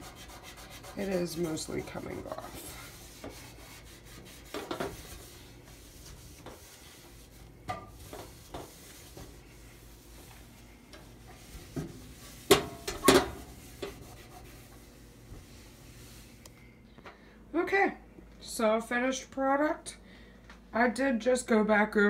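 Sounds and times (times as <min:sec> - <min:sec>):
towel rubbing a stove top: 0:00.0 - 0:16.4.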